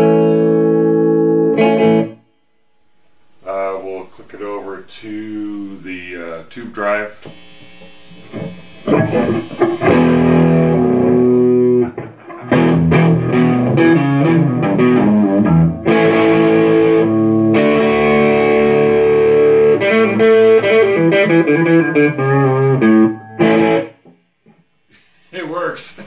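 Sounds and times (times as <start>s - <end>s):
overdriven electric guitar: 0.0s - 2.4s, 6.8s - 24.7s.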